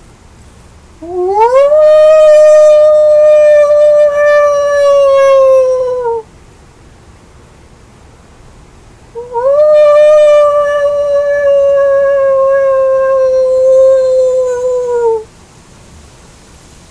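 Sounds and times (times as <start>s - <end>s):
man howling like a wolf: 1.0s - 6.2s, 9.2s - 15.3s.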